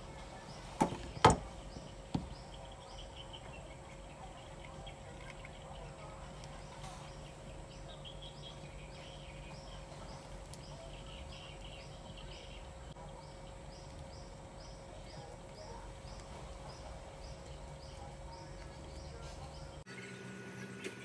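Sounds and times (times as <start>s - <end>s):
faint high chirping: 0.0s - 21.0s
steady low hum: 0.0s - 21.0s.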